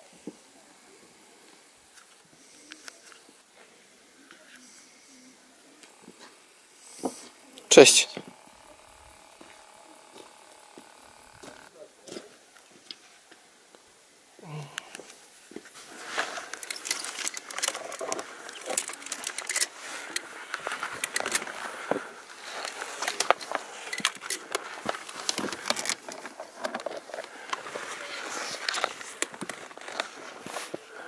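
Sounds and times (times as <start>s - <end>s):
steady rustling: 15.6s - 31.0s
steel chain clinking: 16.5s - 20.2s, 22.6s - 24.5s.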